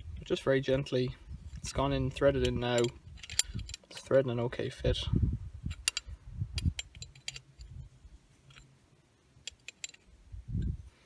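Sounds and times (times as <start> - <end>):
spanner clicking on metal nozzle: 2.4 - 4.1, 5.7 - 7.8, 9.4 - 10.1.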